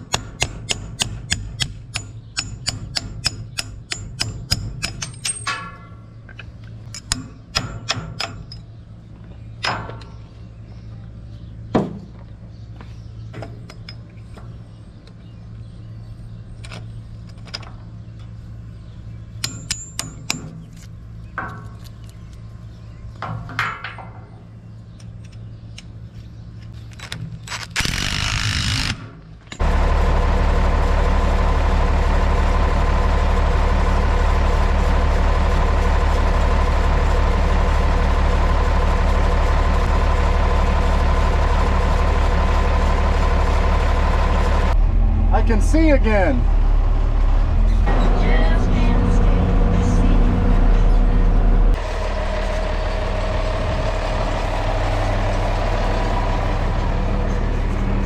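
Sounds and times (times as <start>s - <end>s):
tractor engine running: 0.0s - 58.0s
tractor engine cranking: 26.8s - 58.0s.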